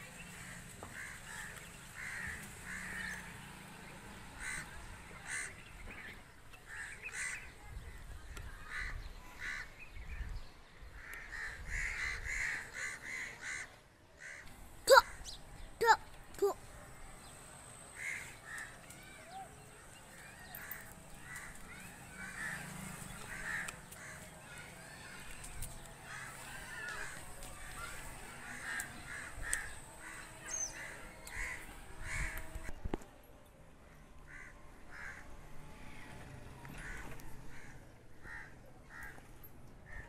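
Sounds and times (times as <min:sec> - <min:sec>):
birds calling: 0:00.0 - 0:07.7, 0:10.9 - 0:32.8.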